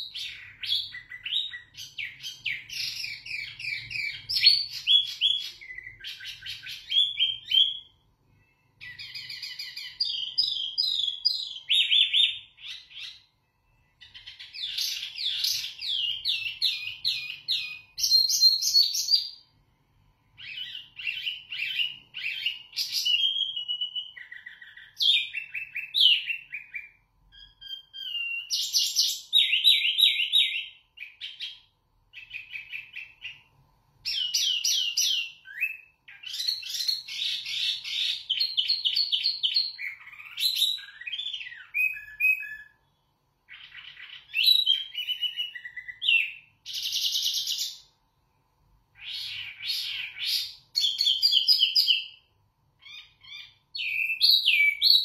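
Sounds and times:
songbird singing chirps and trills: 0.0 - 55.0.

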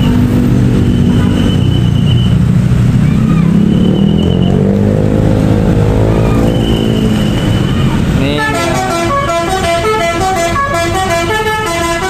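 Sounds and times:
engine and motorcycle traffic: 0.0 - 12.0
multi-tone bus horn tune: 8.2 - 12.0.

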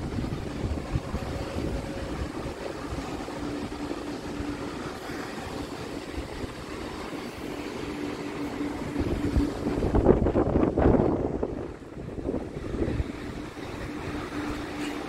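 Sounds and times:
distant aircraft engines droning: 0.0 - 15.0
low steady hum: 0.0 - 15.0
wind buffeting microphone: 0.0 - 15.0.

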